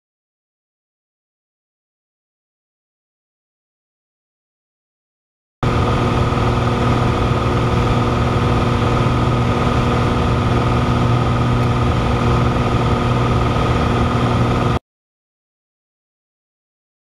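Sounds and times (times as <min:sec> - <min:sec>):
airplane engine and propeller droning: 0:05.6 - 0:14.8.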